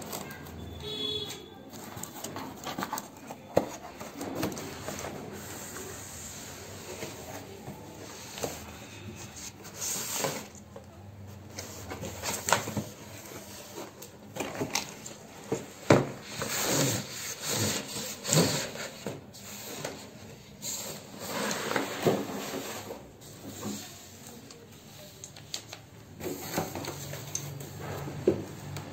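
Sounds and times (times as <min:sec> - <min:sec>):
cardboard scraping against panel: 0:11.4 - 0:24.3.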